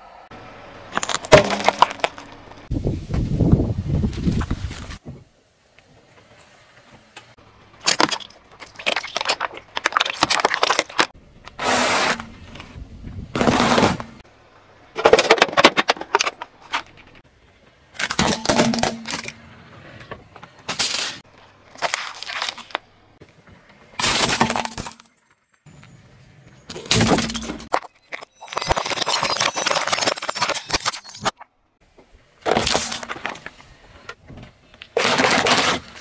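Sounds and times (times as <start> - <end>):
tyre crushing objects: 0.9 - 2.6, 7.8 - 12.4, 13.3 - 14.2, 34.9 - 36.0.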